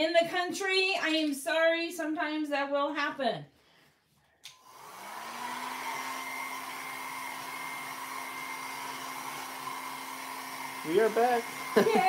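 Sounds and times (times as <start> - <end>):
hair dryer motor humming: 4.5 - 12.0.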